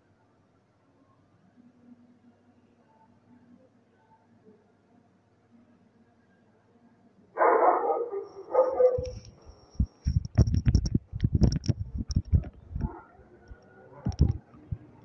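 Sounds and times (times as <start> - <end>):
dog barking: 7.4 - 9.2
dull low knocks and clicks: 8.9 - 14.9.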